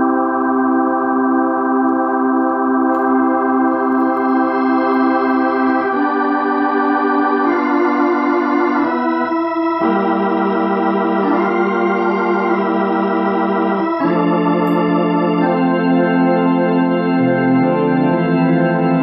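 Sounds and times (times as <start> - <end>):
organ chords through rotating speaker: 0.0 - 19.0.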